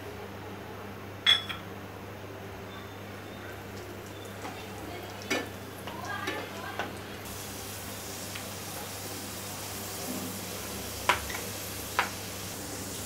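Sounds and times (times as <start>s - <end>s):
spoon clinking against pan: 1.3s - 1.6s
raisins sizzling in hot oil: 3.5s - 13.0s.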